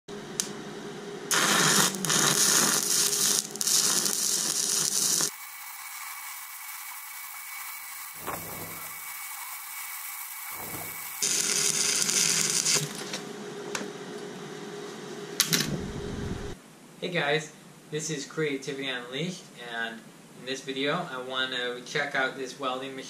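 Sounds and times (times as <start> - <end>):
welding arc crackling hiss: 1.3 - 13.2.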